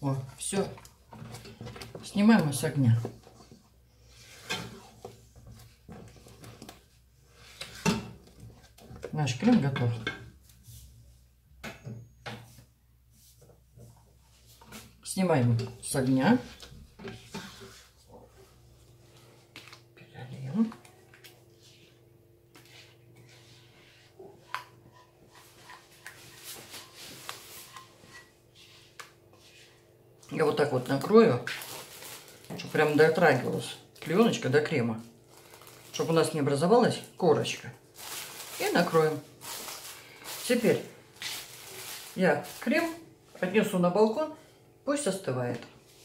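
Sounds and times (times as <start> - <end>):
spatula scraping pot: 16.3 - 18.4, 22.7 - 29.8.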